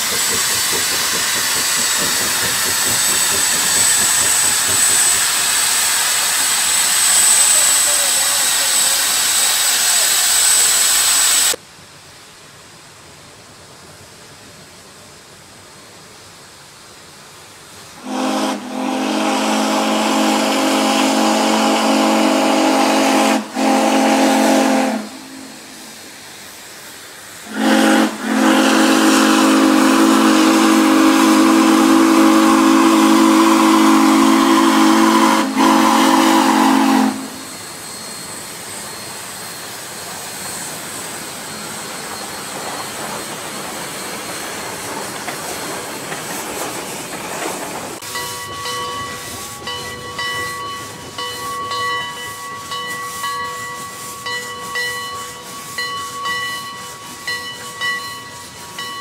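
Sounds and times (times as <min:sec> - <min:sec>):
steam hissing: 0:00.0 - 0:59.0
steam whistle blasts: 0:01.8 - 0:11.6, 0:18.0 - 0:25.9, 0:27.4 - 0:40.5.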